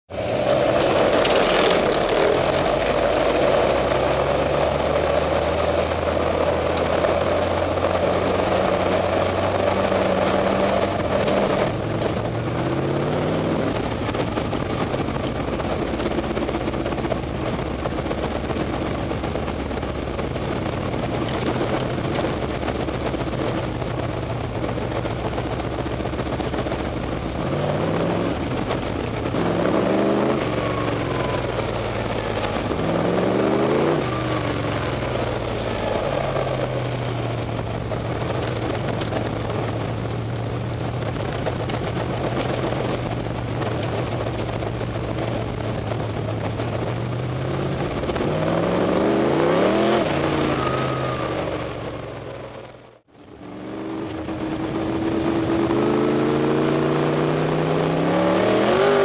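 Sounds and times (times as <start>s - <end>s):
race car engine running hard: 0.1s - 59.0s.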